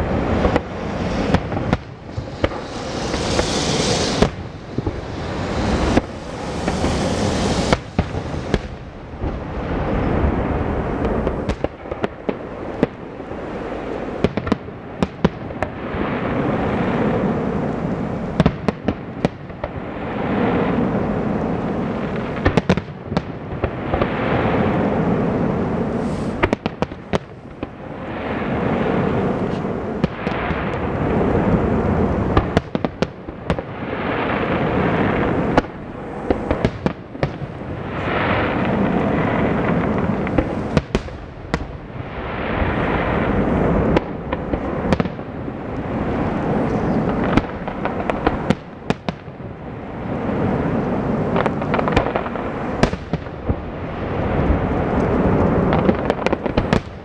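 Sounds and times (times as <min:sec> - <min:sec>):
rushing noise: 0:00.0 - 0:11.5, 0:25.3 - 0:26.6, 0:35.2 - 0:47.2
fireworks bursting bangs: 0:00.0 - 0:17.3, 0:21.8 - 0:57.0.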